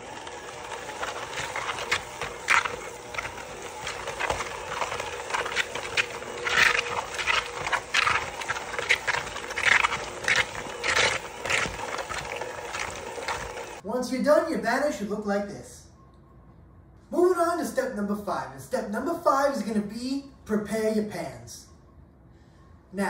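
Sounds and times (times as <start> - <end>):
hand mixer motor hum: 0.0 - 13.8.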